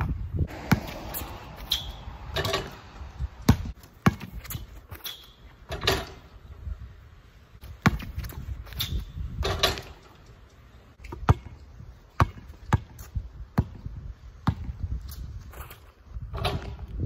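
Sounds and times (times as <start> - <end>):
basketball bouncing on concrete: 0.0 - 6.2, 7.6 - 10.0, 11.0 - 14.9.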